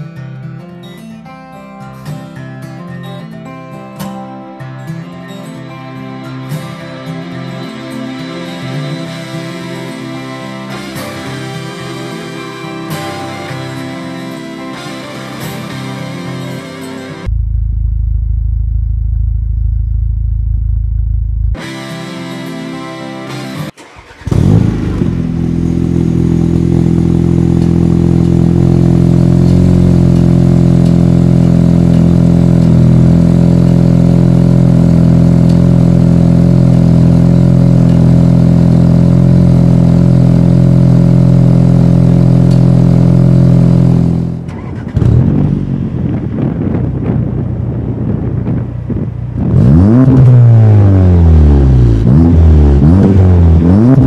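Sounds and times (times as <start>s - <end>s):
car engine starting: 5.7s - 54.0s
car engine revving: 6.1s - 54.0s
car engine idling loudly: 24.0s - 49.9s.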